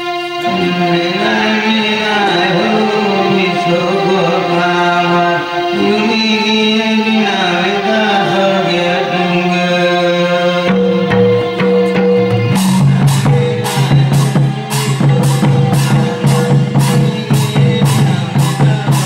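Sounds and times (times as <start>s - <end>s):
electronic keyboard notes: 0.0s - 19.0s
person singing: 0.0s - 19.0s.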